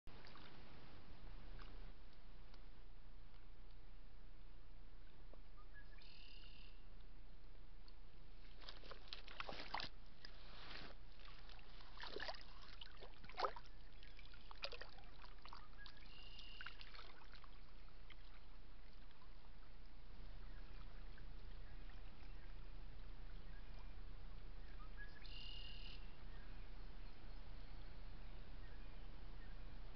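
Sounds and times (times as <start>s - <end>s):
water splashes: 0.1s - 1.9s, 8.4s - 23.3s
rustles: 7.9s - 13.6s.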